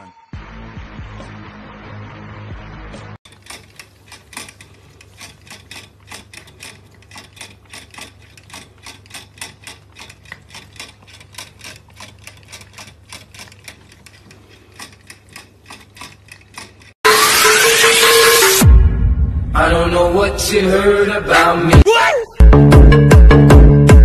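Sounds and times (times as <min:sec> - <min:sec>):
cat licking metal spout clicking: 0:03.3 - 0:17.0.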